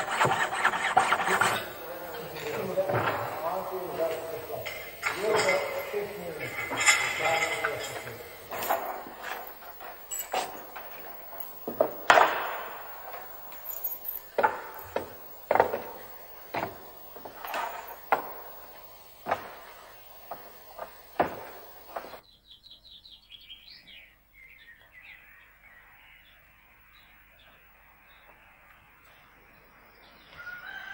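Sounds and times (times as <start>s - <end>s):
sharp ringing knocks: 1.0s - 22.2s.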